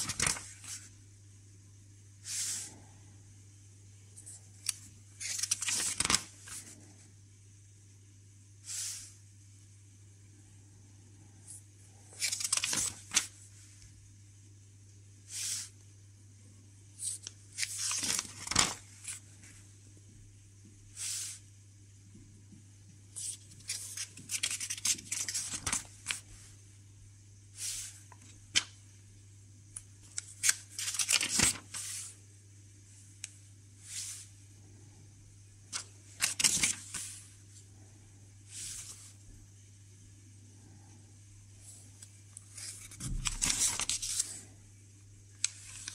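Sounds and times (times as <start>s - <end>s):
paper pages rustling: 0.0s - 0.9s, 4.2s - 6.8s, 12.1s - 13.5s, 17.0s - 19.6s, 23.2s - 26.3s, 27.6s - 28.8s, 30.0s - 32.1s, 35.7s - 37.3s, 42.4s - 44.4s, 45.4s - 45.9s
faint low hum: 0.0s - 45.9s.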